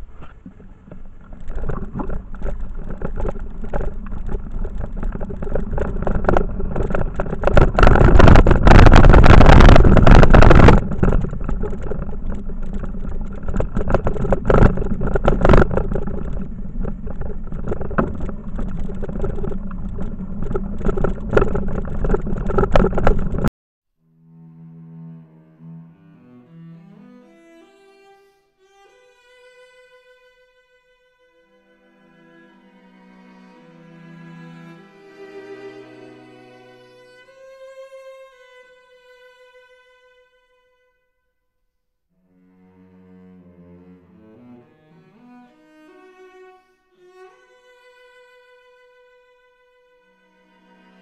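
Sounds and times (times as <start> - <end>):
bicycle knocks and rattles: 0.0 - 23.5.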